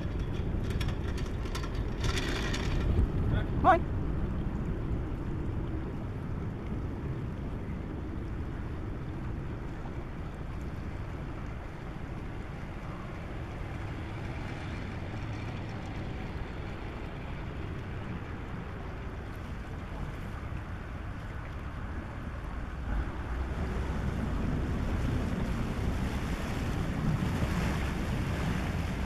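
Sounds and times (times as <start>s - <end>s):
cargo ship diesel engine rumble: 0.0s - 4.2s, 7.6s - 21.1s
water along ship hull: 0.0s - 29.0s.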